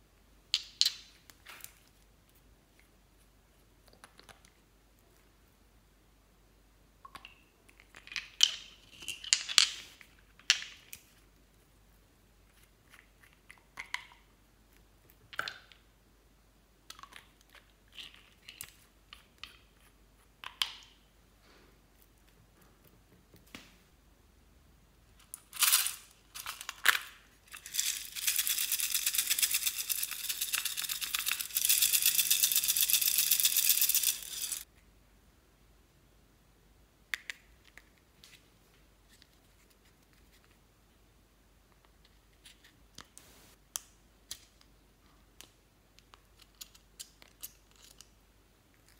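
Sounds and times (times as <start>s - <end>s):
rapid plastic rattle: 27.6s - 34.6s.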